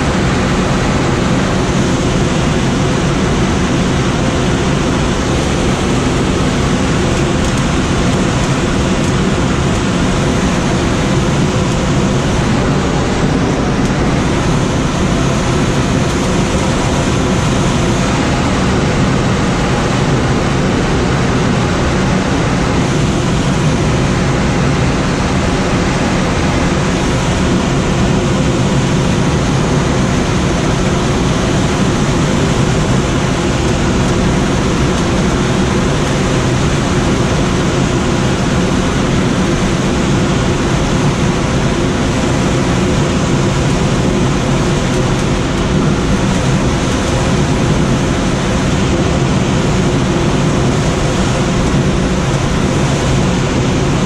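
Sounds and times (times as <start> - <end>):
wind rushing past glider: 0.0 - 54.0.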